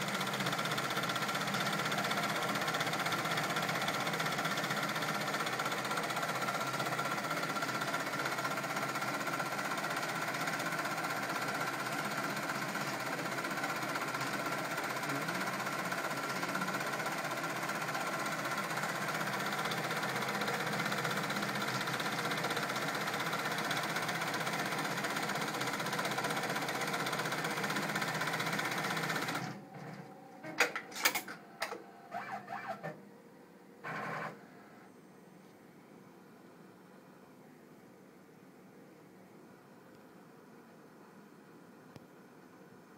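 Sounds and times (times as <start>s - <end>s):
embroidery machine running: 0.0s - 33.0s.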